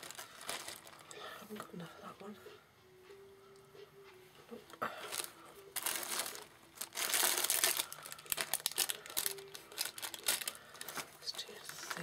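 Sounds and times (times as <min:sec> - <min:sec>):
plastic bag crinkling: 0:00.0 - 0:01.2, 0:05.0 - 0:12.0.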